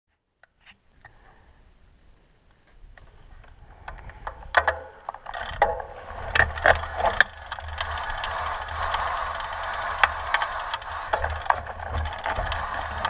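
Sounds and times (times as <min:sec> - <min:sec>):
bike knocking and rattling: 0:03.8 - 0:13.0
bike tyres on gravel: 0:05.2 - 0:13.0.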